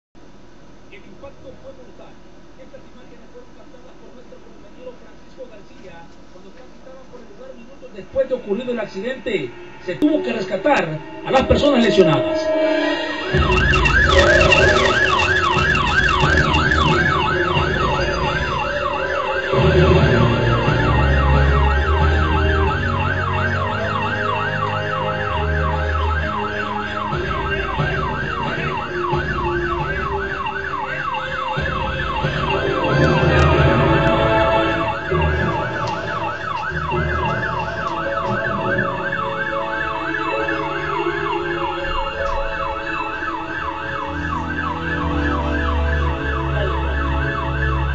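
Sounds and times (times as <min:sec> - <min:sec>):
emergency siren yelping: 0:09.3 - 0:47.9.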